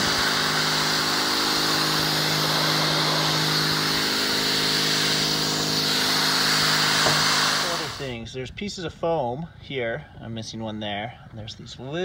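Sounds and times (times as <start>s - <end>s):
pump motor humming: 0.0s - 8.1s
spray jet on metal roof: 0.0s - 8.1s.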